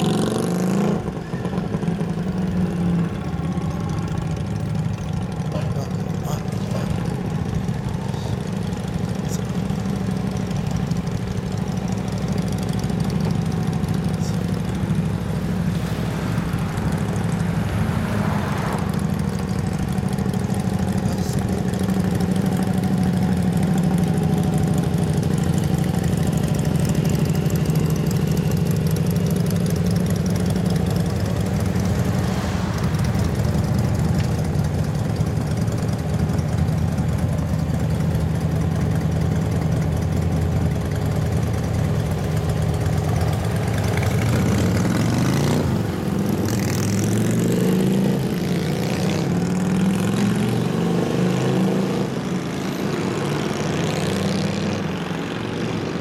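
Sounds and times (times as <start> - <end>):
motorcycles idling: 0.0 - 50.3
motorcycle engines revving: 0.0 - 56.0.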